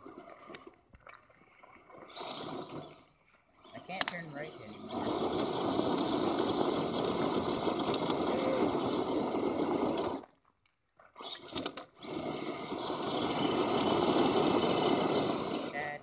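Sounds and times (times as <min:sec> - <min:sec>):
toy truck tyres crunching gravel: 0:02.0 - 0:10.5, 0:11.1 - 0:16.0
clicks: 0:04.0 - 0:04.4.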